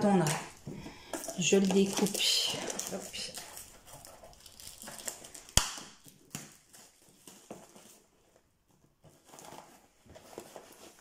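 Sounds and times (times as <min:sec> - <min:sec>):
plastic wrap rustling and crinkling: 0:00.0 - 0:11.0
sharp snap: 0:05.6 - 0:05.9.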